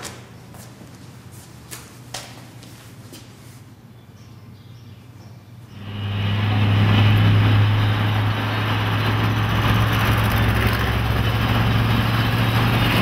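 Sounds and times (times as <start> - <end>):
low engine drone: 5.6 - 13.0
loud rushing noise: 5.8 - 13.0.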